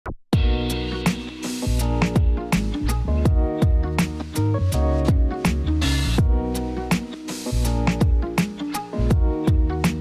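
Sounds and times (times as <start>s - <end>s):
background music with beat: 0.3s - 10.0s
low kick drum: 0.4s - 0.8s, 1.9s - 2.6s, 3.3s - 4.0s, 5.1s - 5.4s, 6.2s - 6.5s, 9.1s - 10.0s.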